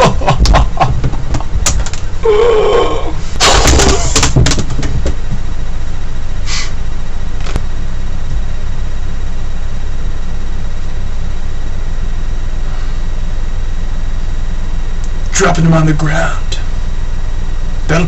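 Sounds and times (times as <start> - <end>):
steady low hum: 0.0 - 18.0
man groaning: 2.2 - 4.2.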